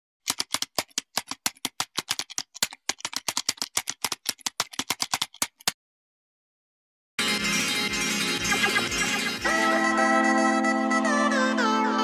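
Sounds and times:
keyboard typing clicks: 0.2 - 5.8.

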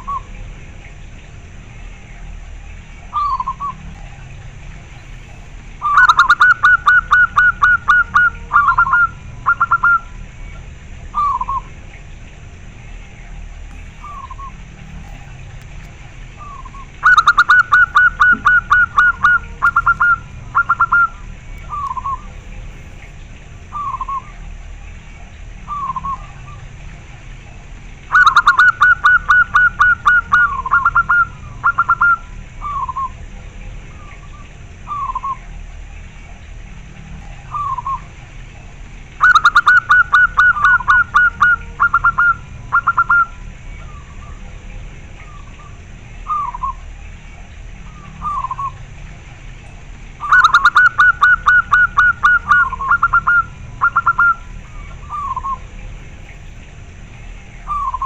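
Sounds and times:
dove rapid staccato cooing: 2.4 - 58.0
soft falling dove coos: 13.6 - 25.0.

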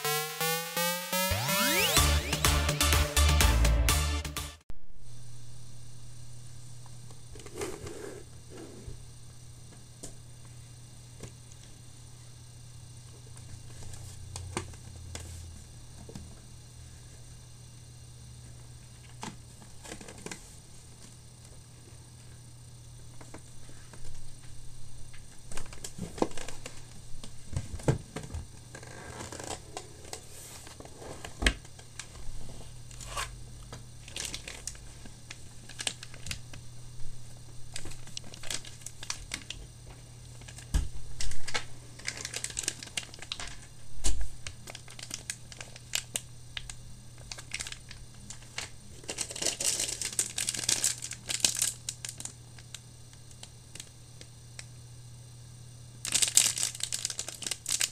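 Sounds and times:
steady low hum: 4.7 - 28.8
plastic bags crinkling and tearing: 34.0 - 36.4, 37.8 - 39.6, 40.4 - 52.7, 56.0 - 57.9.

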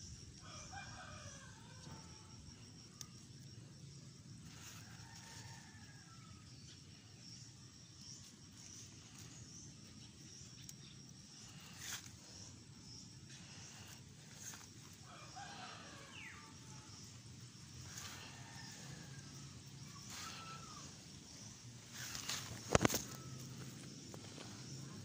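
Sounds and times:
insect drone: 0.0 - 25.0
leaves rustling and pods snapping: 21.9 - 24.6.

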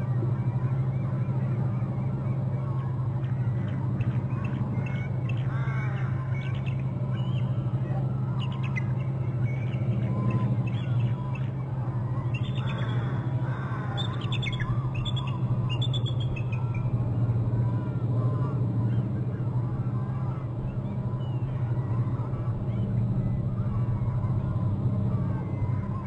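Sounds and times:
steady low hum: 0.0 - 26.0
eagle chittering calls: 0.4 - 17.0.

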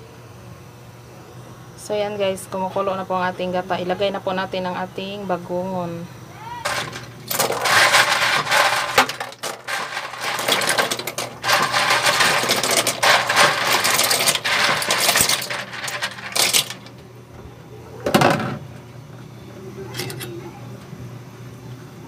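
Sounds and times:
snail shells clattering into a pot: 6.7 - 17.0.

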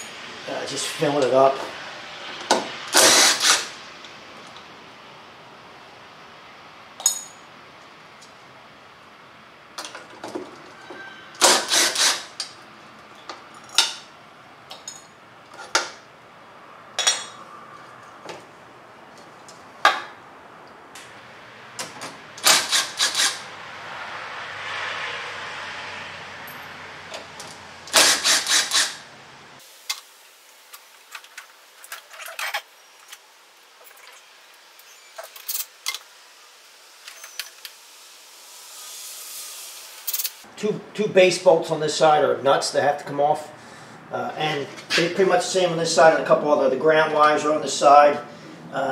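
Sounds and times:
metal tools and parts clanking: 7.0 - 7.4, 13.1 - 14.1, 14.7 - 16.0, 17.0 - 17.4, 31.1 - 33.2, 35.1 - 36.0.

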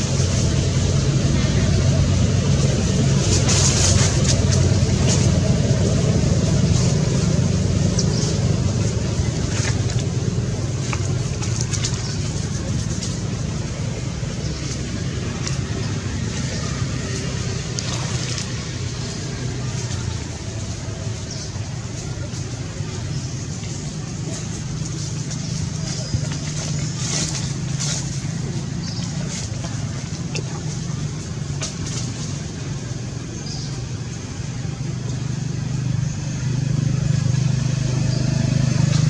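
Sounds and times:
low engine hum: 0.0 - 39.0.

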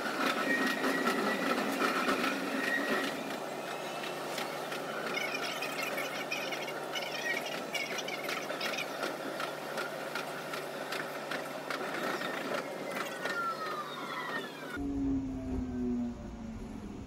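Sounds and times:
electric train rumbling: 0.0 - 17.0
train whine falling in pitch: 13.2 - 17.0.

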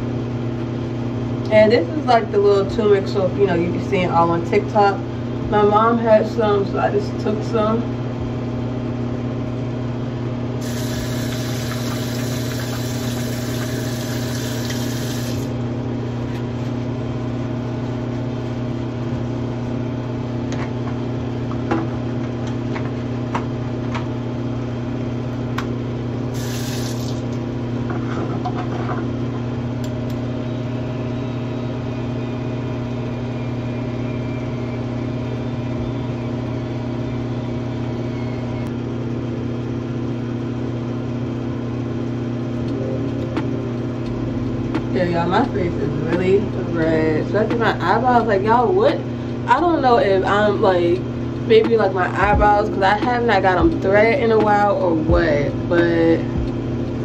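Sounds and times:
exhaust fan humming: 0.0 - 57.0
tap water running: 10.6 - 15.5, 26.4 - 27.4.

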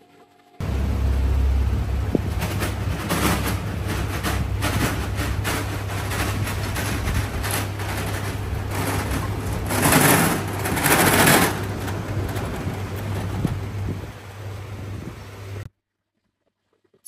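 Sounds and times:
low hum: 0.6 - 15.7
power tool rattling: 2.2 - 14.0.

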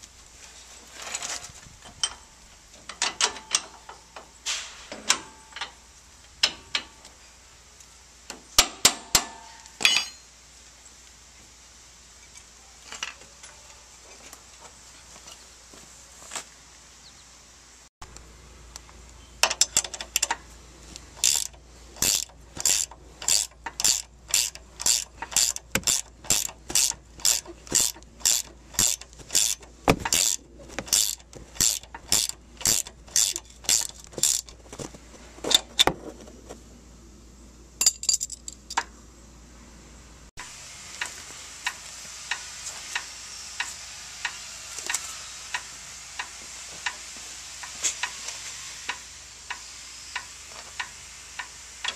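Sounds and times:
ratchet wrench clicking: 19.4 - 20.4, 21.2 - 34.6, 41.0 - 48.2, 48.8 - 51.9.

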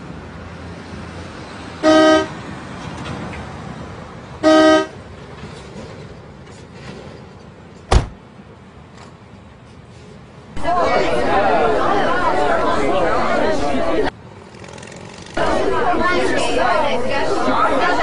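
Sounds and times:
car horn honking: 1.8 - 2.4, 4.4 - 5.0
sharp thump: 7.9 - 8.2.

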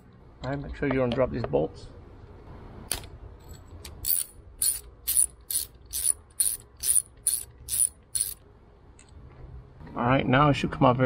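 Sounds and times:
ratchet wrench clicking: 3.9 - 8.4.

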